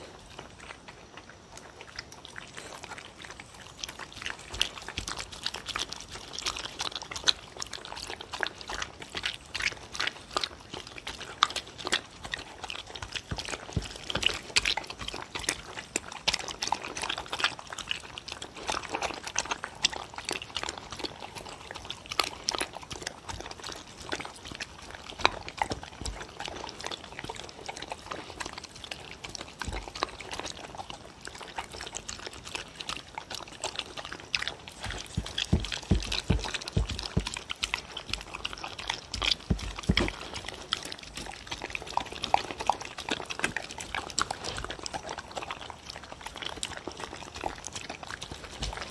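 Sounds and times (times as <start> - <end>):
dogs lapping and chewing food: 0.0 - 48.9.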